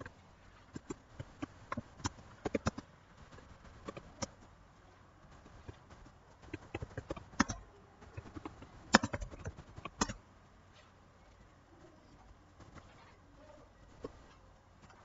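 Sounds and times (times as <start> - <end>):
computer keyboard and mouse clicks: 0.7 - 4.5, 5.3 - 10.2.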